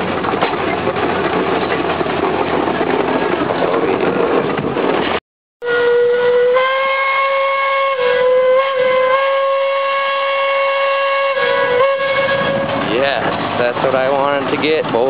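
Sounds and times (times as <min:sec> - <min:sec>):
steam whistle blast: 0:05.6 - 0:12.8.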